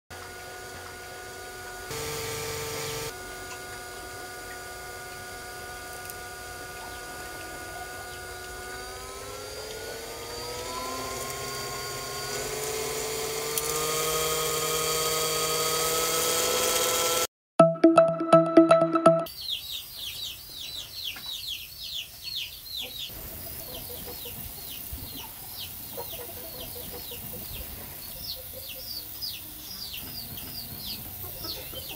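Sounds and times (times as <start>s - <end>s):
small electric motor whine: 0.1s - 17.3s.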